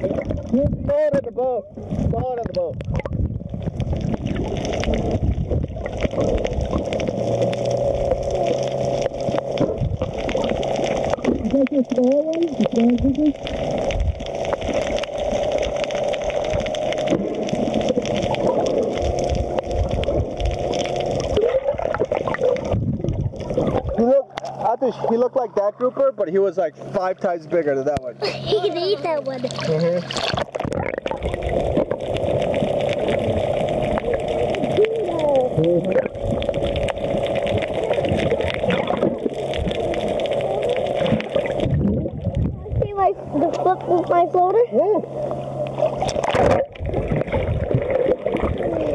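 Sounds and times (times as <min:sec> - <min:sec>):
dull low thumps: 0:00.0 - 0:07.2, 0:21.6 - 0:24.0, 0:41.5 - 0:43.2
water gurgling and sloshing: 0:00.0 - 0:48.9
small underwater clicks: 0:02.0 - 0:24.7, 0:29.3 - 0:44.6, 0:45.2 - 0:48.9.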